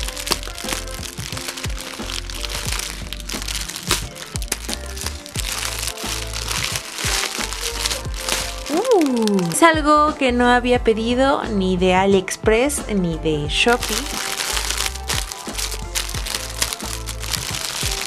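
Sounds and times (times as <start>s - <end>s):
music with bass beat: 0.0s - 8.7s, 9.6s - 18.0s
scissors snipping plastic: 0.0s - 9.6s, 13.8s - 18.0s
plastic crinkling: 0.0s - 9.7s, 13.7s - 18.0s.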